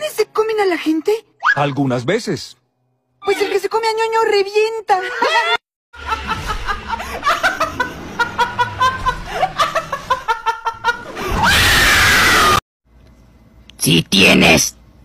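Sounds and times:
person laughing: 5.0s - 11.4s
loud scream: 11.2s - 12.6s.

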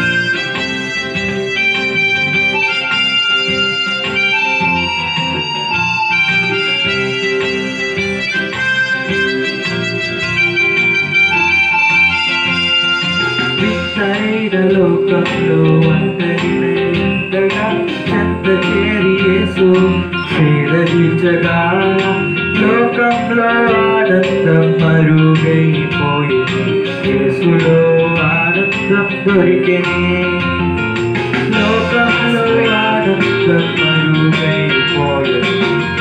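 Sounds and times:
keyboard chords: 0.0s - 36.0s
person singing: 12.4s - 36.0s
programmed drum beat: 13.2s - 36.0s.

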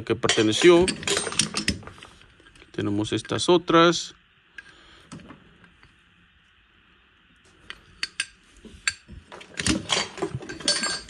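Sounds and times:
metal tools clinking in a drawer: 0.2s - 1.9s, 8.9s - 11.0s.

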